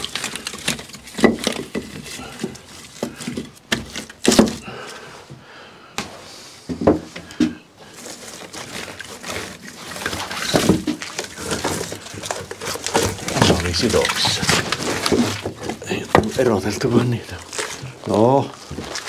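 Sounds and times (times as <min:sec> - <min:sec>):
wooden knocks of firewood: 0:00.0 - 0:04.7, 0:06.7 - 0:07.6, 0:10.0 - 0:18.0.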